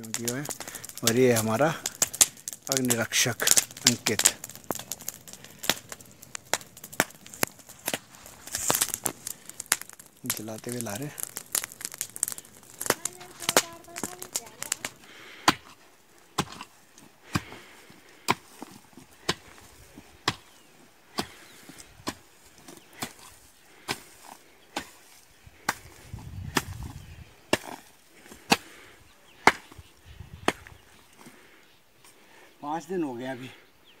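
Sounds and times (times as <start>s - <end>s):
hoe striking hard soil: 15.4s - 15.8s, 16.4s - 16.7s.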